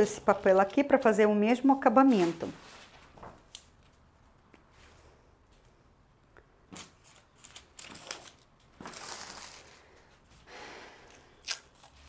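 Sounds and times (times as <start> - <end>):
paper rustling and sliding: 1.9 - 3.5, 6.8 - 9.8.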